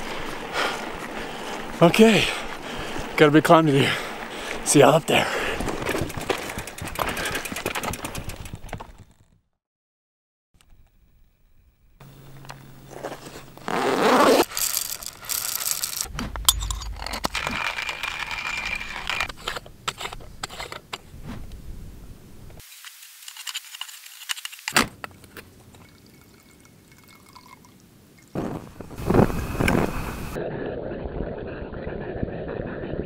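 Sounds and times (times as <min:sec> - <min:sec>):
metal camp gear clinking and scraping: 0:12.3 - 0:21.1.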